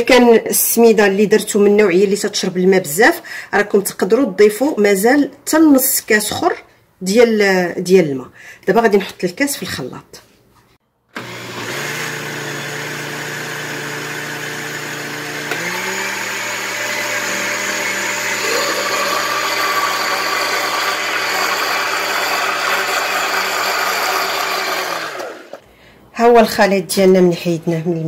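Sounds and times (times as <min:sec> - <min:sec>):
blender motor running: 0:11.1 - 0:25.6.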